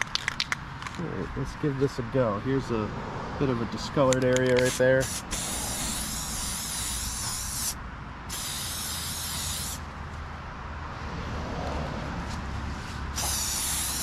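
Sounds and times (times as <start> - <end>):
spray paint can hissing: 4.6 - 9.8, 13.1 - 14.0.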